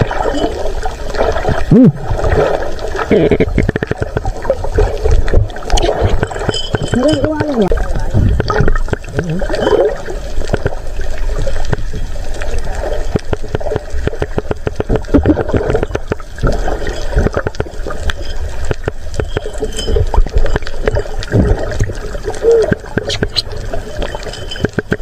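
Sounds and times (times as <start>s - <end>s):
sharp clicks underwater: 0.0s - 25.0s
underwater gurgling water: 0.0s - 25.0s.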